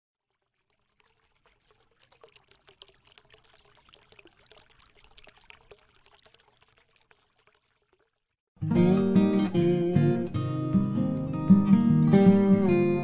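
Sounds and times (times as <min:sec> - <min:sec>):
faint trickling water: 0:00.1 - 0:08.5.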